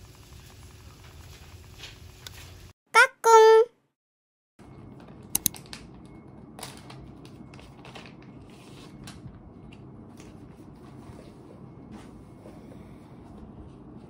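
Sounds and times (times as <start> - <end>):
low room hum: 4.6 - 14.0.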